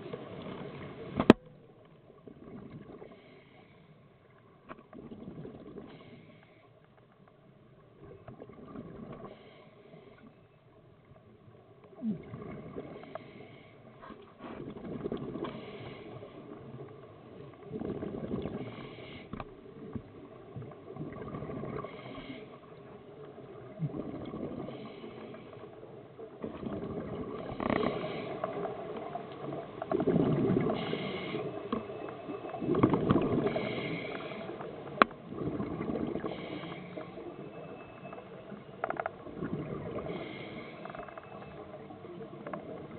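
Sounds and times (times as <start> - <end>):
underwater water noise: 0.0 - 42.9
bubbles gurgling underwater: 4.9 - 5.9, 12.0 - 13.1, 17.6 - 18.7, 19.8 - 22.0, 23.5 - 24.8, 26.3 - 31.2, 32.3 - 36.6, 39.0 - 40.3.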